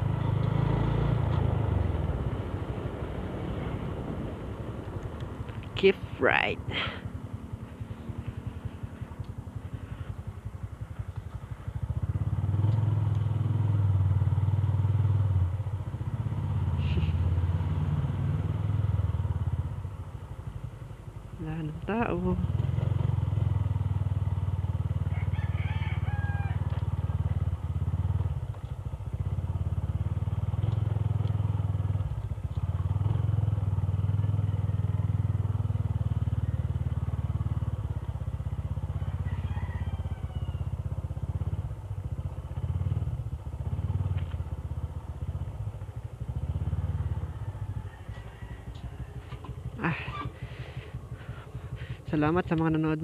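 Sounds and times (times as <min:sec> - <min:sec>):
motorcycle engine running: 0:00.0 - 0:53.0
rooster crowing: 0:25.0 - 0:26.7, 0:38.9 - 0:40.9, 0:47.0 - 0:49.4.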